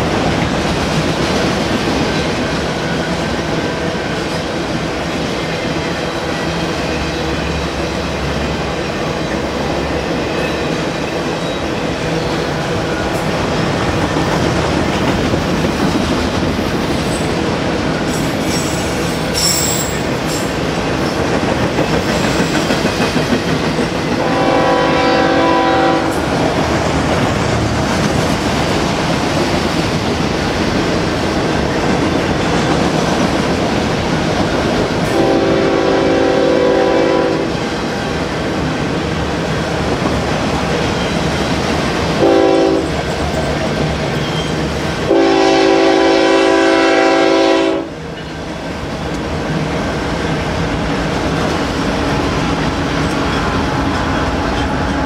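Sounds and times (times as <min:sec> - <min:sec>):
train wheels clattering on rail: 0:00.0 - 0:55.0
locomotive air horn blasts: 0:24.2 - 0:26.3, 0:35.1 - 0:37.5, 0:42.2 - 0:42.9, 0:45.1 - 0:47.9.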